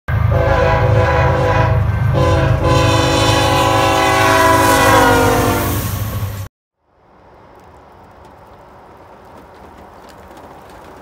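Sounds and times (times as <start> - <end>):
locomotive air horn blast: 0.1 - 6.4
low train rumble: 0.1 - 11.0.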